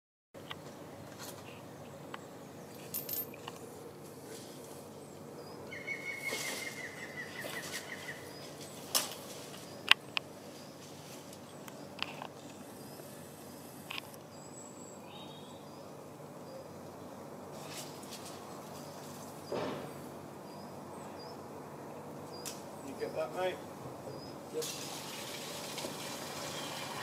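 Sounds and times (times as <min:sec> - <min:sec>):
low steady hum: 0:00.4 - 0:27.0
bird trilling: 0:05.4 - 0:08.8.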